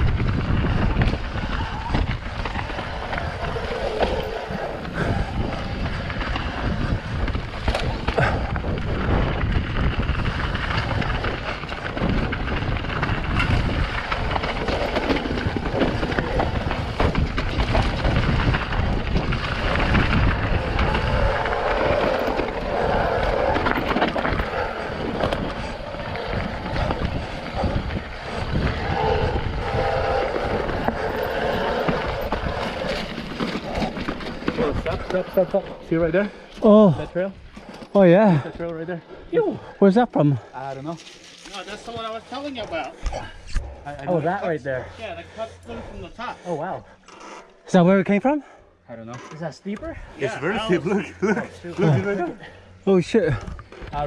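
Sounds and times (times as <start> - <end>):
wind on microphone: 0.0 - 35.2
bike rattling over bumps: 0.0 - 38.7
bike tyres rolling on dirt: 0.0 - 48.6.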